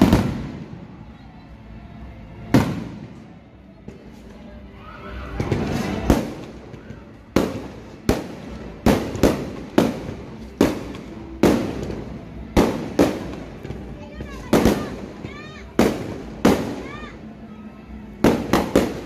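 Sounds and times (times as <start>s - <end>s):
fireworks booming: 0.0s - 0.8s.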